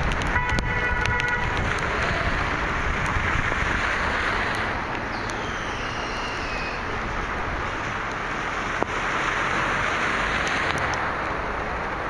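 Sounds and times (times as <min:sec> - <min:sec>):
steady rain: 0:00.0 - 0:12.0
wet road traffic: 0:00.0 - 0:12.0.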